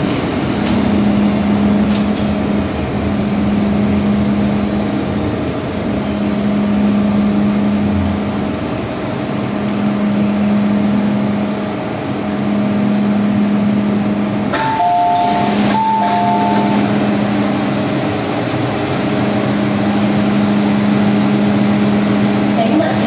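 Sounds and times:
train hum and rail noise: 0:00.0 - 0:23.0
two-note electronic chime: 0:14.5 - 0:16.9.

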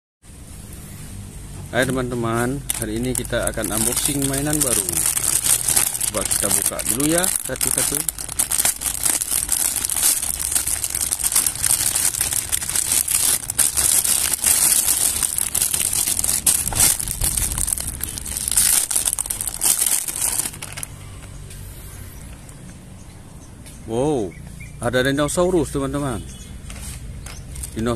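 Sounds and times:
plastic bag crinkling: 0:02.6 - 0:21.0.

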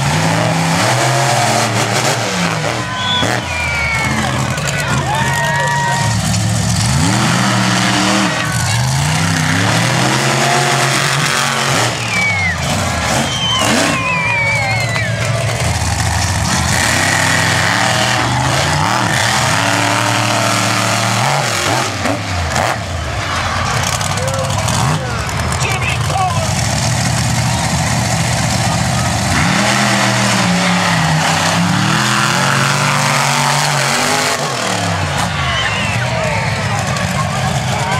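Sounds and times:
monster truck engines revving: 0:00.0 - 0:37.9
high whistling glides: 0:11.8 - 0:15.5.

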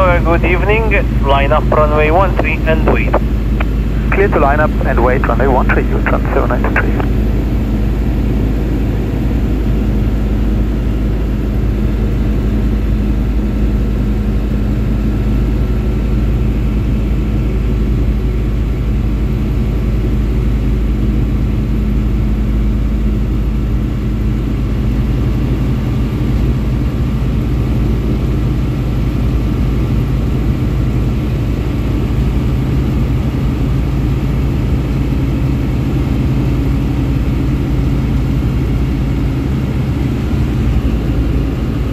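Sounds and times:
propeller aircraft engine droning: 0:00.0 - 0:41.9.

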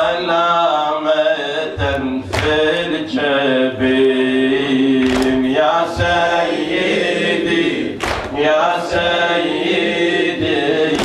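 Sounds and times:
men chanting in unison: 0:00.0 - 0:11.0
hands slapping chests: 0:05.0 - 0:05.4, 0:08.0 - 0:08.4.

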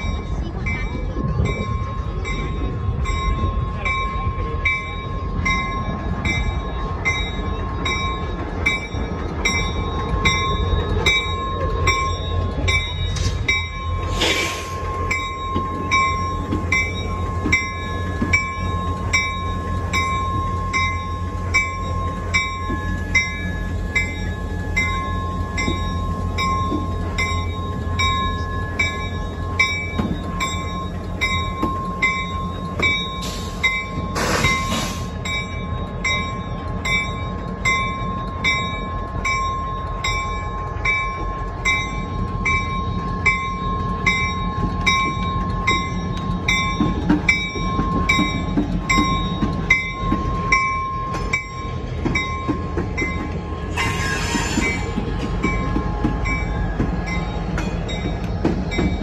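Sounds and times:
diesel locomotive engine rumbling: 0:00.0 - 0:59.0
locomotive bell ringing: 0:00.0 - 0:59.0
brief hiss: 0:14.1 - 0:14.8.

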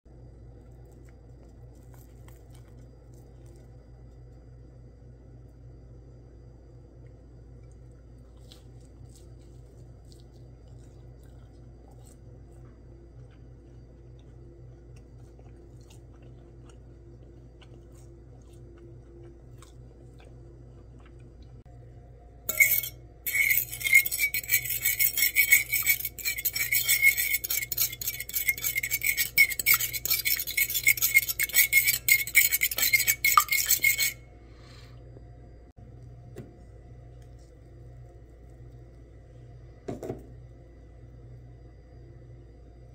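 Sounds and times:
faint steady hum: 0:00.1 - 0:42.9
fork whisking eggs in bowl: 0:22.5 - 0:34.2.

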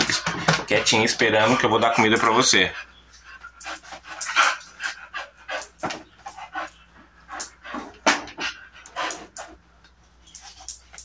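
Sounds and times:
dog panting: 0:01.2 - 0:09.6.

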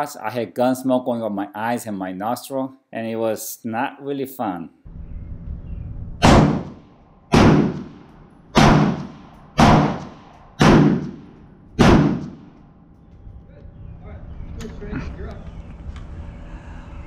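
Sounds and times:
gunshots with ringing: 0:06.2 - 0:12.7.

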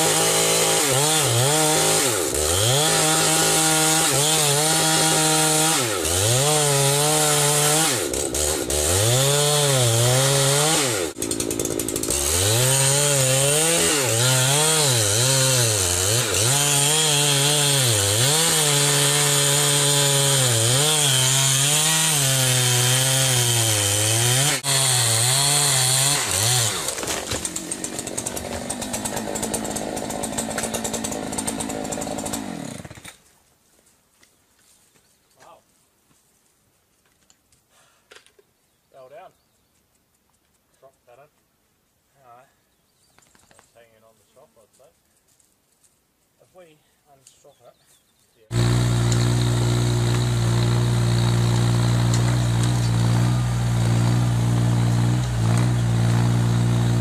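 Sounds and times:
chainsaw cutting log: 0:00.0 - 0:33.2, 0:48.5 - 0:57.0.

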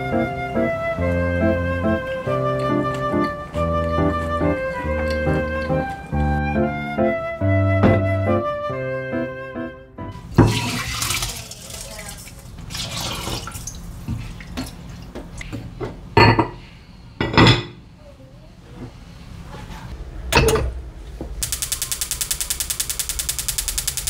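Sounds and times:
water trickling into a pot: 0:10.4 - 0:14.6
gas igniter clicking rapidly: 0:21.4 - 0:24.0.

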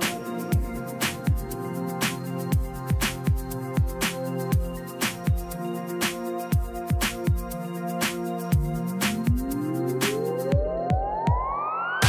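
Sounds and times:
rising synth sweep: 0:08.4 - 0:12.0
kick-drum beat: 0:08.5 - 0:11.6.

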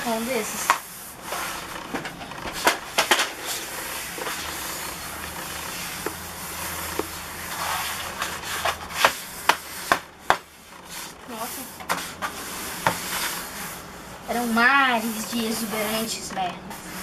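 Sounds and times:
brush scrubbing wet paint: 0:03.6 - 0:17.0.

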